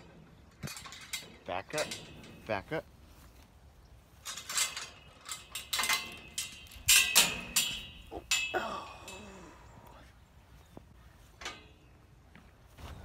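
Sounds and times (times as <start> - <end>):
metal gate clanking and rattling: 0.0 - 2.9, 4.1 - 9.4, 11.4 - 12.0
thin metallic ringing: 4.2 - 9.6.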